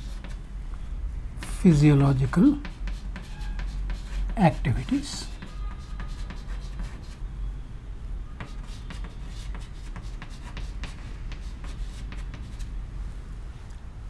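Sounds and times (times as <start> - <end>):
chalk scratching on chalkboard: 0.0 - 0.4, 1.4 - 7.2, 8.4 - 12.7.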